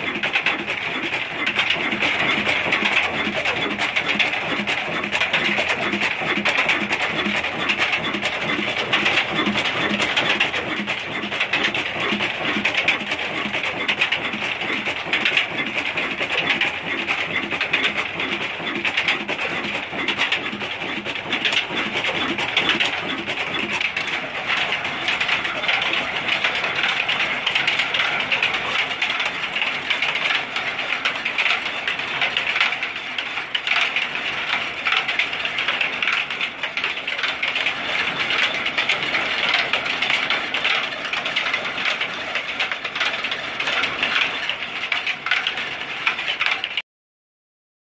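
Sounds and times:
low pulsing beat: 0:00.0 - 0:24.1
diesel engine mechanical clatter: 0:00.0 - 0:46.8.

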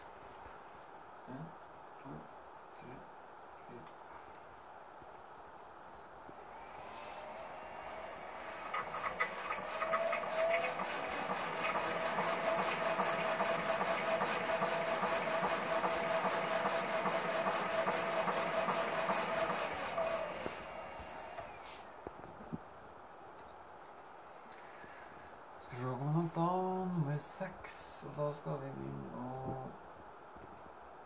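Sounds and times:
electric motor whining: 0:06.2 - 0:21.4.

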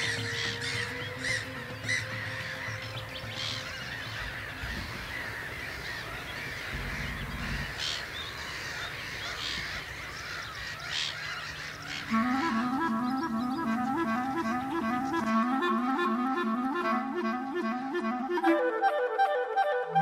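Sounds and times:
flock of birds calling: 0:00.0 - 0:15.9.

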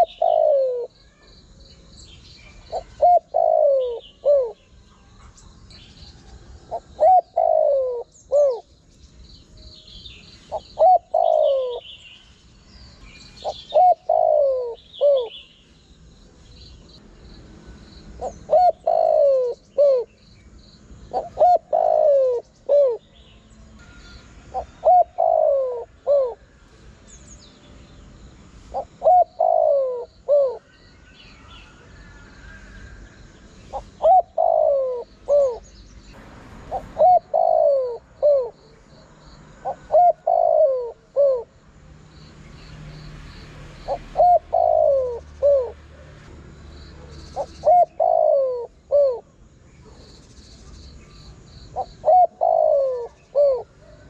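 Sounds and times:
dove cooing: 0:00.0 - 0:01.0, 0:02.4 - 0:05.2, 0:06.6 - 0:08.7, 0:10.5 - 0:12.0, 0:13.4 - 0:15.4, 0:18.2 - 0:20.2, 0:21.1 - 0:23.1, 0:23.8 - 0:26.5, 0:28.7 - 0:30.7, 0:33.7 - 0:35.7, 0:36.7 - 0:38.7, 0:39.5 - 0:41.5, 0:43.8 - 0:46.1, 0:47.0 - 0:50.1, 0:51.7 - 0:54.0
faint high-pitched chirping: 0:00.0 - 0:36.2, 0:42.1 - 0:54.0.

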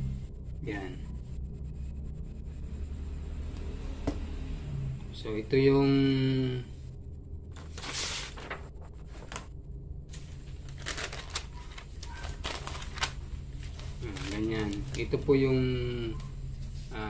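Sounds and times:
steady low hum: 0:00.0 - 0:17.0
paper rustling: 0:07.5 - 0:09.5, 0:10.1 - 0:15.4.

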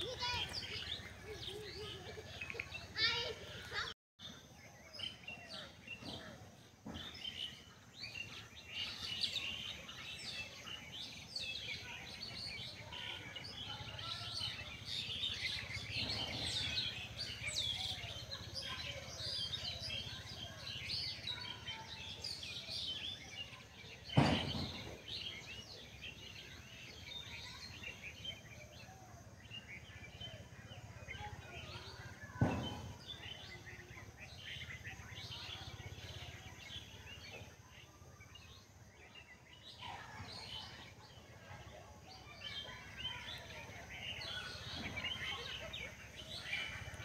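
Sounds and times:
small birds chirping: 0:00.0 - 0:47.0
sharp thump: 0:24.2 - 0:25.0, 0:32.4 - 0:33.0.

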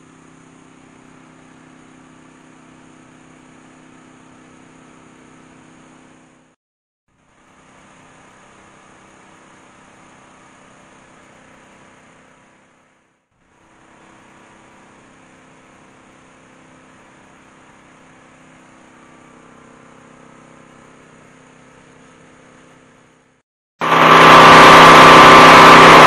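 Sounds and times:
low mechanical hum: 0:00.0 - 0:26.0.

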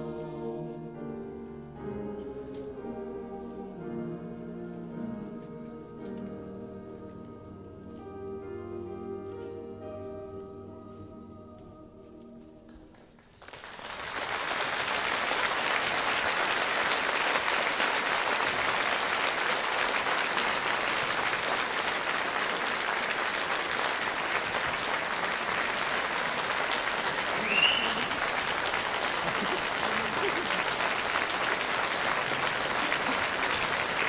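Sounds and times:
choir and piano chord: 0:00.0 - 0:12.8
audience applause: 0:12.9 - 0:34.0.

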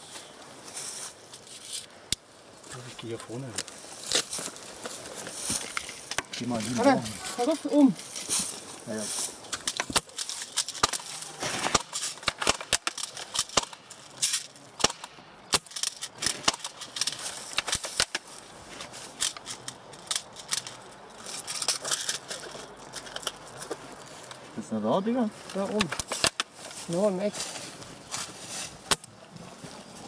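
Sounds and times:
airsoft gun shots and clicks: 0:10.7 - 0:13.9, 0:14.8 - 0:16.8.

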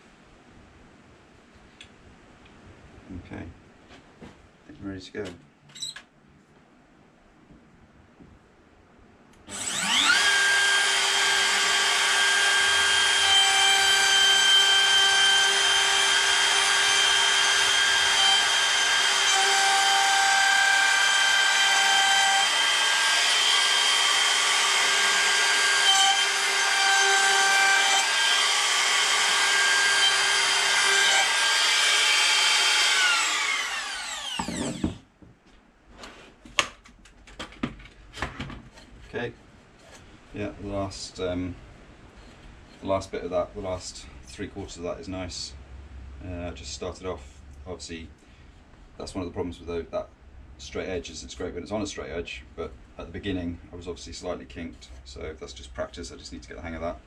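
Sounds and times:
router whining cutting wood: 0:09.5 - 0:35.0.

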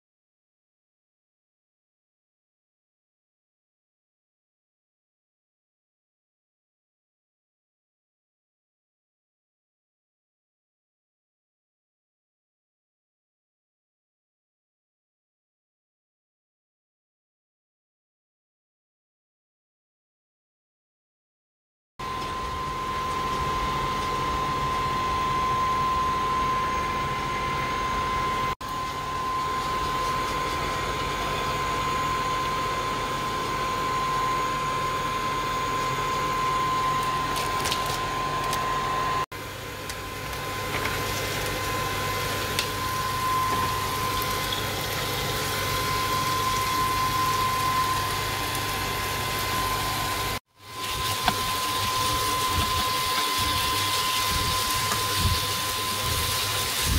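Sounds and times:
onion frying in oil: 0:22.0 - 0:34.4, 0:35.7 - 0:56.9
steady hum with high whine: 0:22.0 - 0:56.9.

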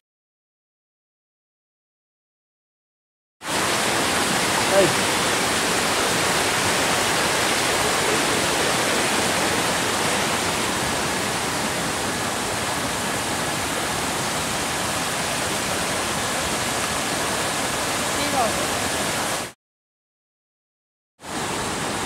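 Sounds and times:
stream rushing over rocks: 0:03.4 - 0:19.6, 0:21.2 - 0:22.0.

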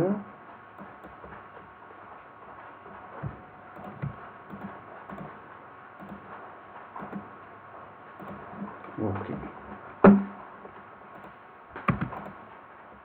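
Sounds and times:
keyboard and mouse clicks: 0:03.7 - 0:05.4, 0:06.0 - 0:06.4, 0:07.0 - 0:07.3, 0:08.2 - 0:08.7, 0:11.1 - 0:12.4.

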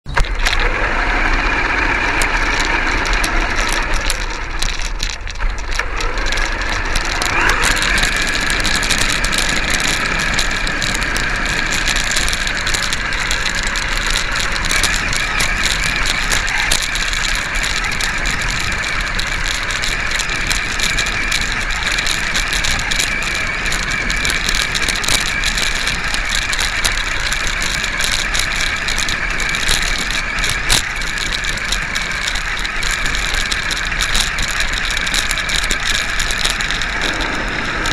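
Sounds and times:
gears rattling: 0:00.0 - 0:37.9
toy truck motor whine: 0:00.1 - 0:37.9
small knocks over ground: 0:01.9 - 0:37.9.

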